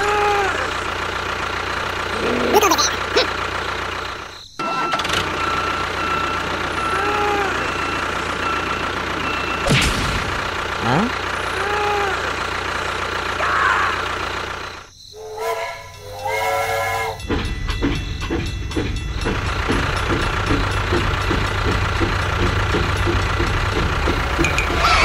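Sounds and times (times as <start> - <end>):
engine hum: 0.0 - 25.0
toy train chugging: 0.1 - 4.4, 10.6 - 25.0
toy train whistle tooting: 15.1 - 17.3.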